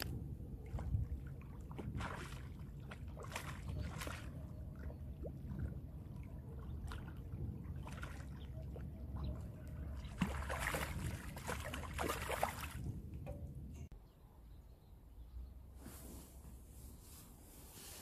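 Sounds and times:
fish splashing in water: 0.6 - 12.8
low steady rumble: 12.7 - 14.0.

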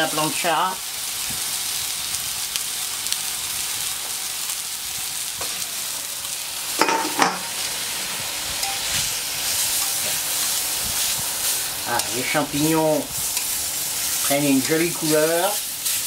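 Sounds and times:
meat sizzling on hot plate: 0.0 - 16.0
metal dome cover clanking: 6.8 - 7.5.

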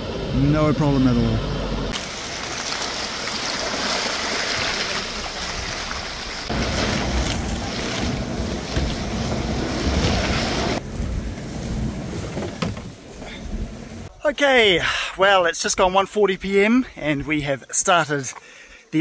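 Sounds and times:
truck low rumble: 0.0 - 14.2.

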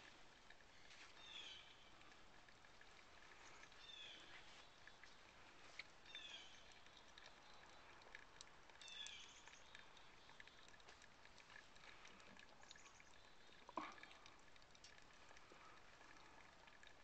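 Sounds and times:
faint ticks: 0.0 - 17.0.

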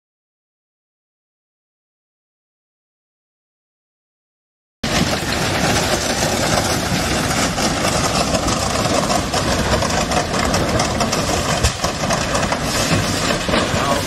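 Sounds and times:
freight train rumbling past: 4.8 - 14.0.

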